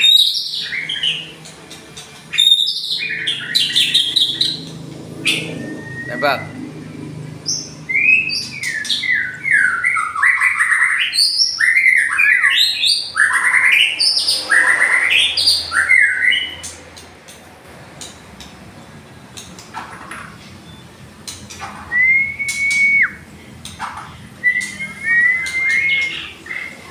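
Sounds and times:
bird singing whistled phrases: 2.3 - 4.6, 5.3 - 6.6, 7.6 - 16.6, 21.9 - 23.3, 24.4 - 26.9.

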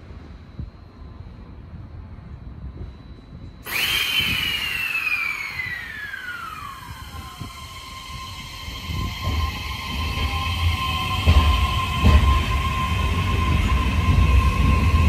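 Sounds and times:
air hiss: 3.6 - 13.6
electric train motor whine: 3.6 - 15.0.

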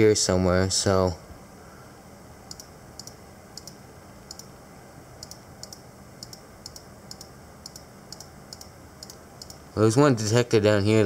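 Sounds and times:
low background hum: 0.0 - 11.0
computer mouse clicks: 2.5 - 4.5, 5.2 - 9.6.

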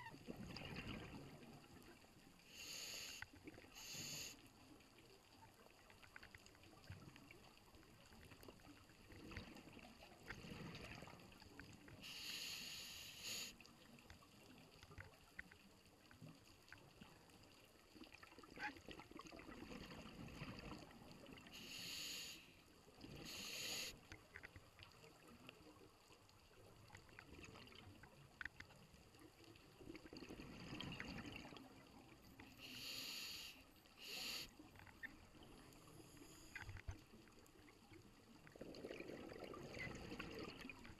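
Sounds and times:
exhaled bubbles rumbling: 0.0 - 1.8, 29.7 - 32.1, 37.9 - 40.9
diver inhaling through regulator: 2.4 - 4.4, 12.0 - 13.6, 21.5 - 22.6, 23.2 - 24.0, 32.6 - 34.5.

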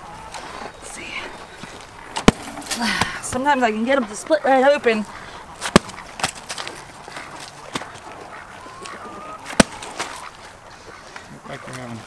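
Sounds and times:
cabbage thudding onto dirt: 5.6 - 6.6, 9.5 - 10.2
faint poultry call: 8.3 - 11.7.

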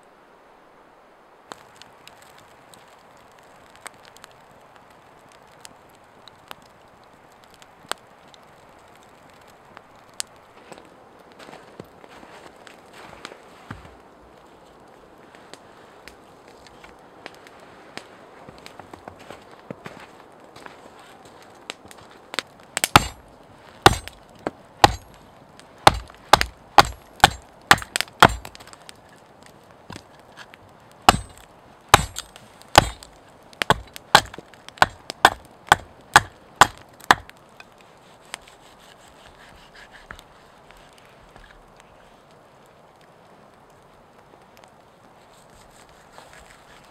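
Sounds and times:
campfire hissing: 0.0 - 46.9
fire crackles and pops: 1.3 - 46.9
axe chopping into log: 22.8 - 23.2, 23.8 - 24.2, 24.8 - 25.0, 25.9 - 28.6, 31.1 - 37.3.

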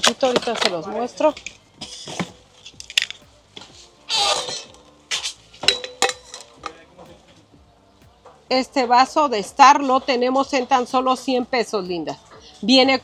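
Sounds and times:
tumbler clinking and knocking: 5.6 - 6.9.

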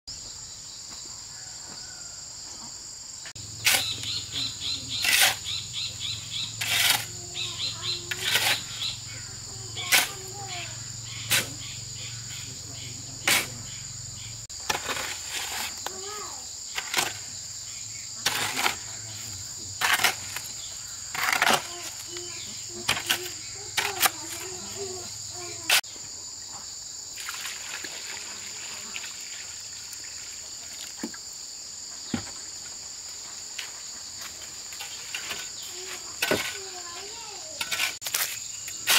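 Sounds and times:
high-pitched insect chorus: 0.1 - 38.9.

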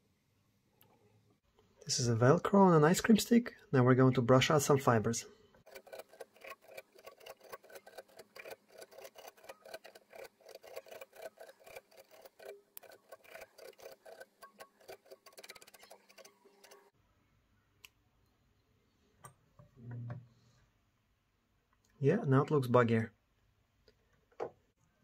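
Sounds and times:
velcro rasping over fibers: 5.7 - 16.8.

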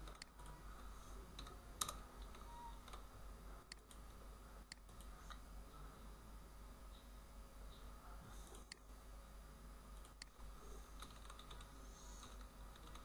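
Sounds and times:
faint low hum: 0.0 - 13.0
keyboard and mouse clicks: 1.4 - 3.0, 11.0 - 13.0.

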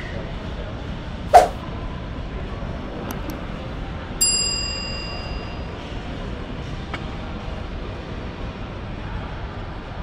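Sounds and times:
large hall background noise: 0.0 - 10.0
bright metallic ding: 4.2 - 5.8.

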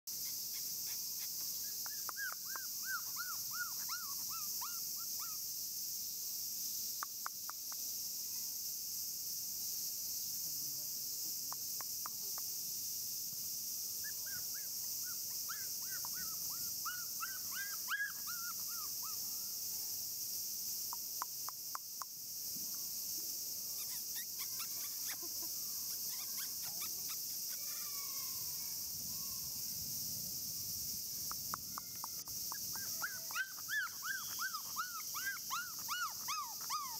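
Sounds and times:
rapid repeated chirping calls: 0.1 - 5.6, 13.9 - 19.5, 23.7 - 27.9, 31.1 - 36.9
steady high-pitched hiss: 0.1 - 36.9.

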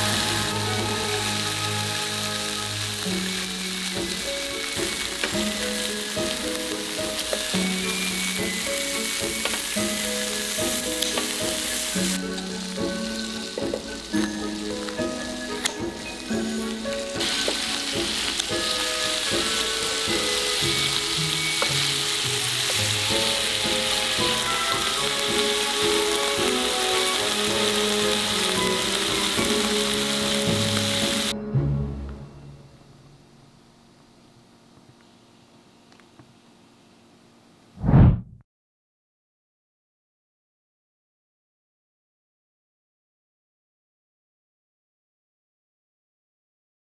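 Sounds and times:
food sizzling on grill pan: 0.0 - 31.3
slow background music: 0.0 - 34.8.

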